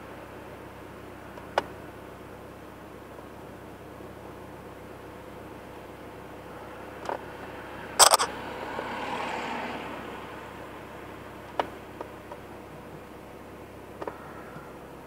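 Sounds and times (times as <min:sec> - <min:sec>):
vehicle passing: 0:07.5 - 0:11.0
sharp clicks and knocks: 0:08.0 - 0:08.3.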